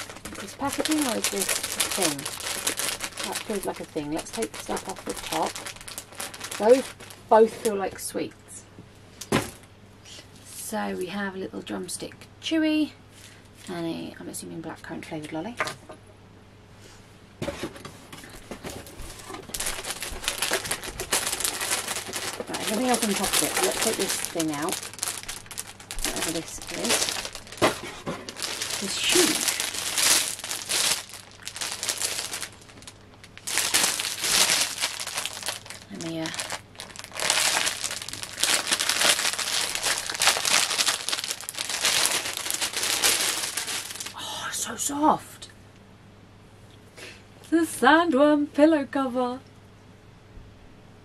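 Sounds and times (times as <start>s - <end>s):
packaging rustling and crinkling: 0.0s - 7.8s, 18.2s - 44.2s.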